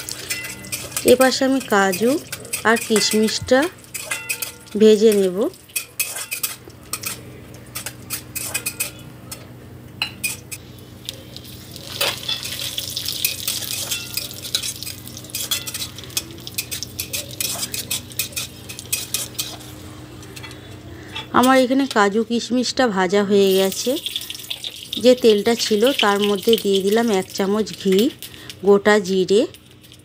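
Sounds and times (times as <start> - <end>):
nuts sizzling in oil: 0.0 - 8.2, 10.6 - 19.7, 23.4 - 30.0
spatula scraping a metal pan: 5.8 - 7.2, 16.6 - 19.7.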